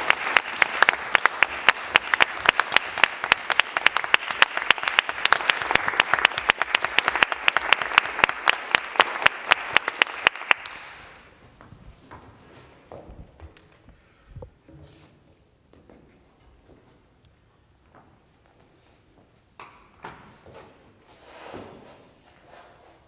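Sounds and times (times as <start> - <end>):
audience applauding: 0.0 - 11.3
sharp individual claps: 0.0 - 11.3.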